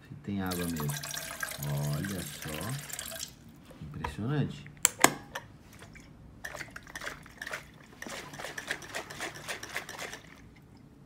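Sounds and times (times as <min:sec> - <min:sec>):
water drips: 0:00.5 - 0:03.6.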